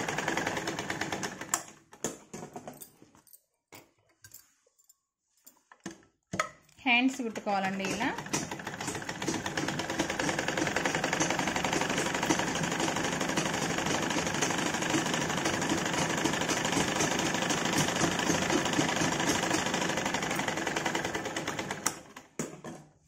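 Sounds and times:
sewing machine stitching: 0:00.0 - 0:01.8, 0:07.6 - 0:22.4.

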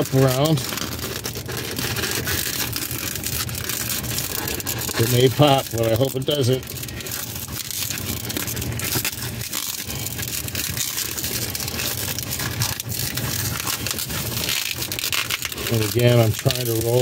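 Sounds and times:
balloon twisting crackle: 0:00.0 - 0:17.0.

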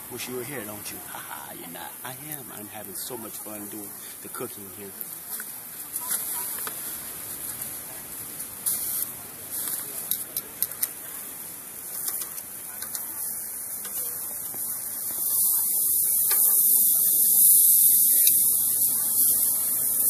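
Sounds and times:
food sizzling on a grill: 0:00.0 - 0:20.0
metal tongs clicking on grates: 0:11.9 - 0:13.1.

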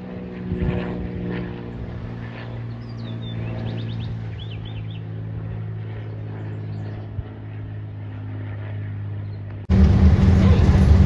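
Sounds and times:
propeller plane engine drone: 0:00.0 - 0:11.0
wind buffeting microphone: 0:00.1 - 0:05.7.

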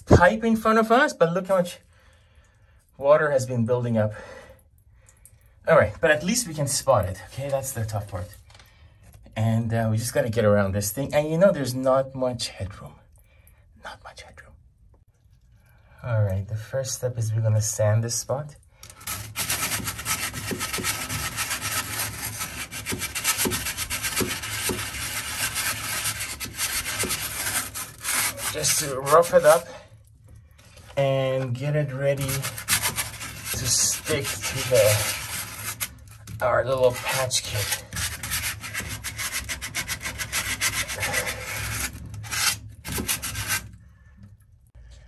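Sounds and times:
sandpaper scrubbing copper pipe: 0:18.9 - 0:29.8, 0:30.9 - 0:43.7.

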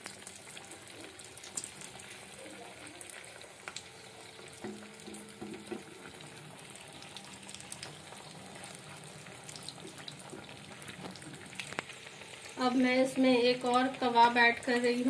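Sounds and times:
food deep-frying in oil: 0:00.0 - 0:15.0
spatula knocking on pan: 0:04.6 - 0:06.0.

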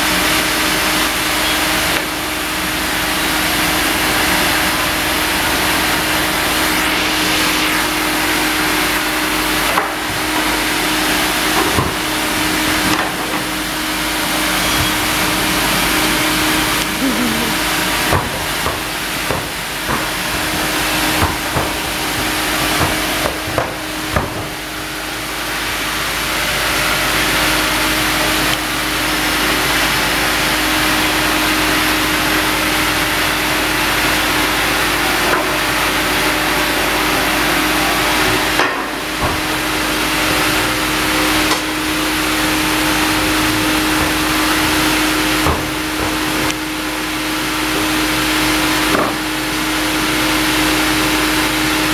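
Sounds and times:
band saw humming: 0:03.4 - 0:25.2.

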